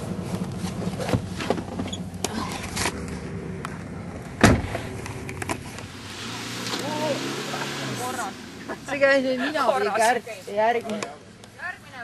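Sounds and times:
low engine hum: 0.0s - 11.6s
loud thump: 4.4s - 5.0s.

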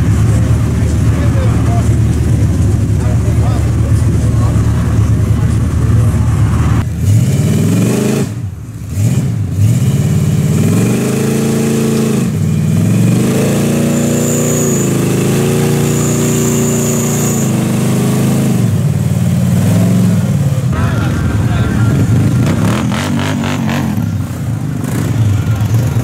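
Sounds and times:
large vehicle engines revving: 0.0s - 26.0s
thin high whistle: 13.9s - 15.0s, 15.6s - 17.7s.

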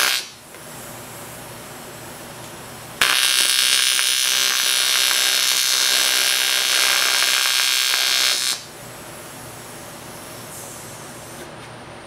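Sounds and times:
welding arc buzzing and crackling: 0.0s - 0.6s, 2.9s - 11.4s.

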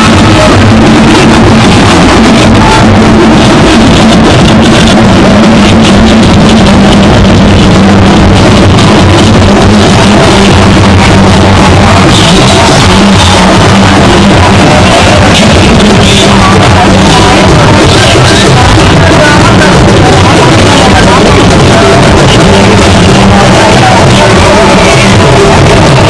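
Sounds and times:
loud music with drums: 0.0s - 26.0s.

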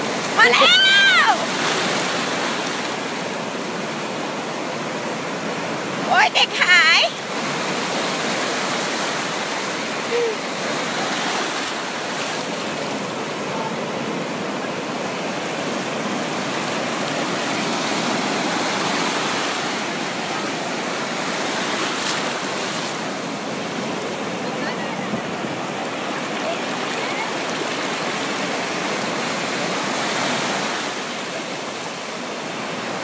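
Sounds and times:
sea surf breaking: 0.0s - 33.0s.

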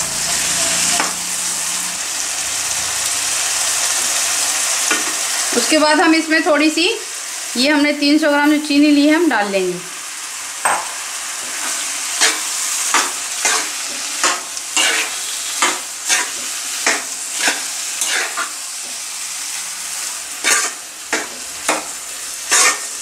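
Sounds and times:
food sizzling in pan: 0.0s - 23.0s
ladle scraping pan: 11.4s - 19.0s, 20.4s - 23.0s.

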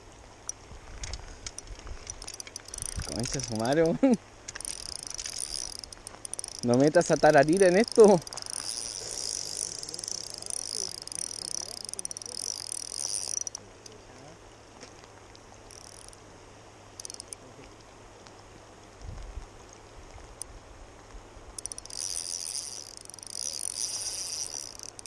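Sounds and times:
fishing reel gears whirring: 0.4s - 14.0s, 15.7s - 16.2s, 16.9s - 17.4s, 21.6s - 25.0s.

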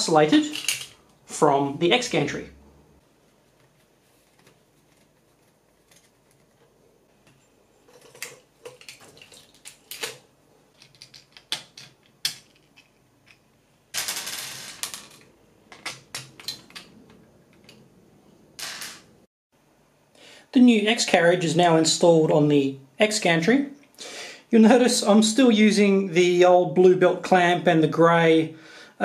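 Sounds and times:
plastic parts and screws clattering: 0.4s - 1.0s, 5.8s - 17.9s.

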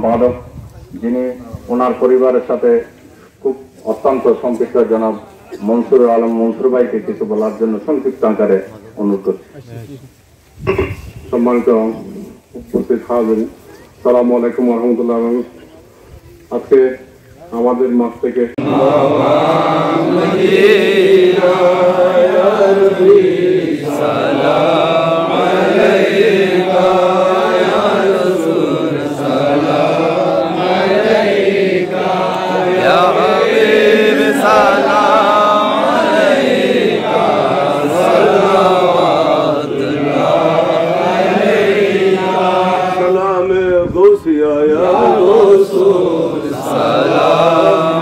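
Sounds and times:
men chanting together: 18.6s - 43.4s, 44.6s - 48.0s.

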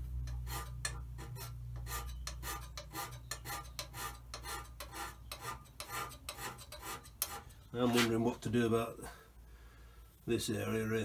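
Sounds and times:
hand scraper rasping on metal: 0.0s - 8.2s
steady low hum: 0.0s - 11.0s.

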